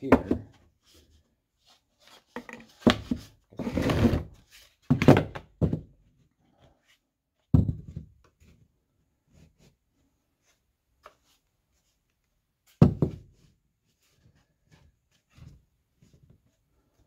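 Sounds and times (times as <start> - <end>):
wooden knocks and thunks: 0.0 - 0.6, 4.8 - 6.0, 7.5 - 8.2, 12.8 - 13.3.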